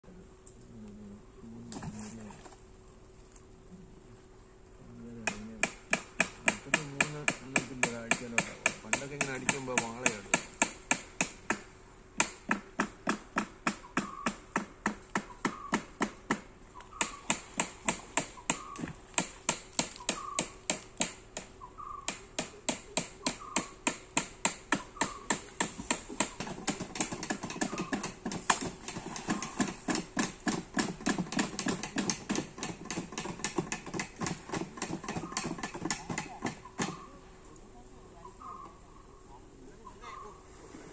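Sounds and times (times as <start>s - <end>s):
faint steady hum: 0.0s - 40.9s.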